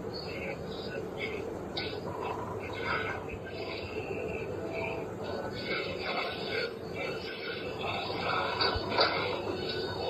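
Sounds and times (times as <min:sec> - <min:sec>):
fast-forwarded chatter: 0:00.0 - 0:10.0.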